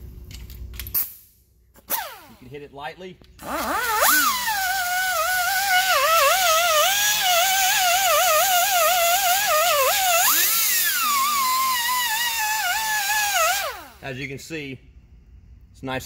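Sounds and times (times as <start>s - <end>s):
die grinder whining: 3.4s - 14.0s.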